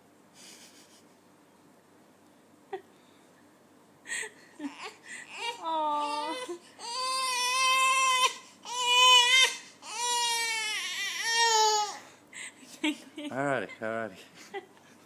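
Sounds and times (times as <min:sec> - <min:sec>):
infant crying: 0:04.6 - 0:12.1.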